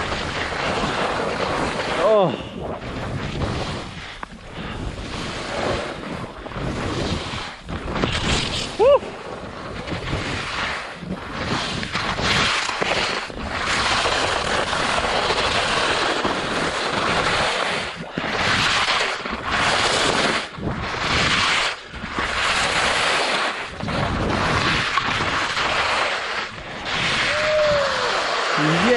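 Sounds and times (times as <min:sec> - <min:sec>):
skis scraping through snow: 0:00.0 - 0:28.9
wind rushing over microphone: 0:00.0 - 0:28.9.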